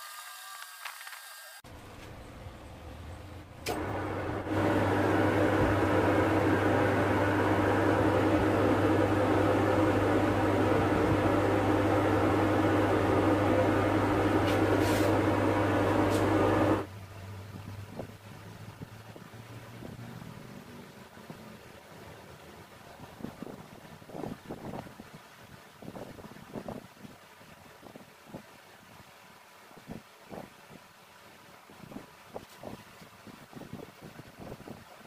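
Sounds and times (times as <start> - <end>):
lathe motor humming: 0.0 - 16.9
lathe switch click: 3.6 - 3.9.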